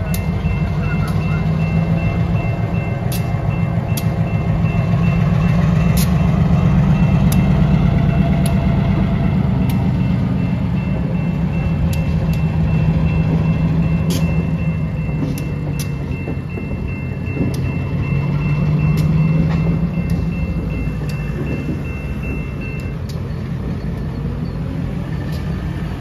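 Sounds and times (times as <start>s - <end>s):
diesel locomotive engine drone: 0.0s - 26.0s.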